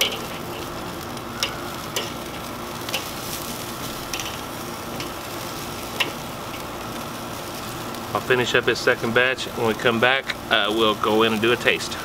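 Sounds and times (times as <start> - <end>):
metal tongs clicking on grate: 0.0 - 0.7, 1.4 - 3.1, 4.1 - 4.4, 5.0 - 5.2, 6.0 - 6.6
chicken wings sizzling on a grill: 0.0 - 12.0.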